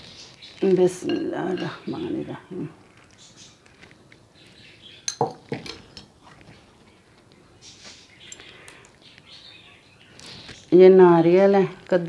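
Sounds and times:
almonds clinking on glass bowl: 0:00.6 - 0:02.4.

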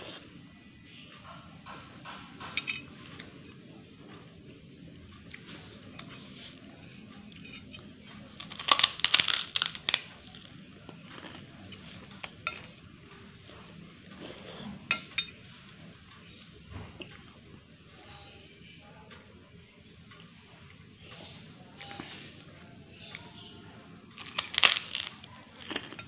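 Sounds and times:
clinking on glass plate: 0:02.5 - 0:03.0
crackers crunching: 0:06.2 - 0:12.9, 0:24.0 - 0:26.0.

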